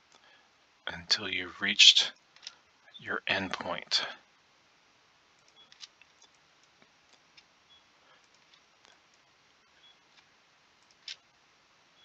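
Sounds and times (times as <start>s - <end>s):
computer mouse clicks: 8.2s - 9.3s, 10.2s - 11.3s.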